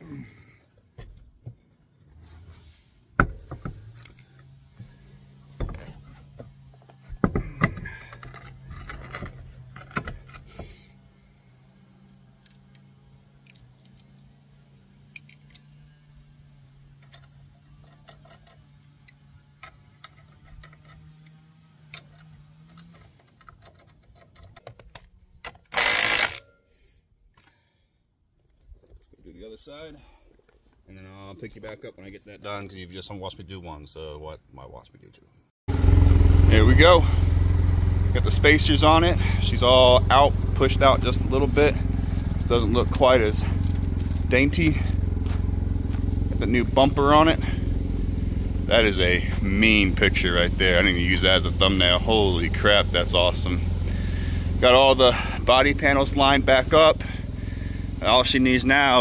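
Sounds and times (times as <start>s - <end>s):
cordless power tool burst: 25.7s - 26.4s.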